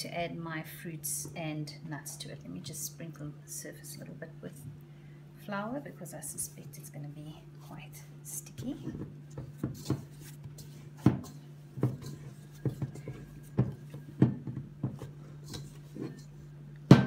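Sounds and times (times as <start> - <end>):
steady low hum: 0.0 - 17.0
dough thumping and squishing: 8.6 - 17.0.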